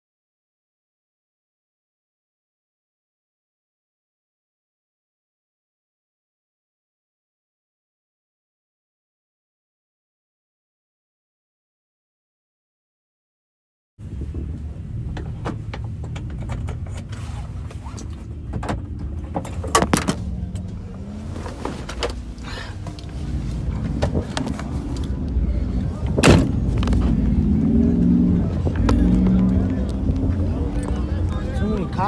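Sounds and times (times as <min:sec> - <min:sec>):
vehicle engines rumbling: 0:14.0 - 0:32.0.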